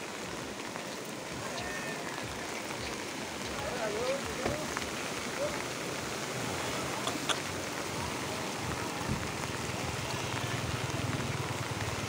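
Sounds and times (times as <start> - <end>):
rain falling: 0.0 - 12.0
river rushing: 0.0 - 12.0.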